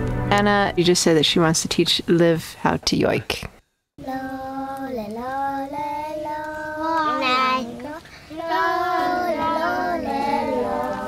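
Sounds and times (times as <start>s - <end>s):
child singing: 4.0s - 11.0s.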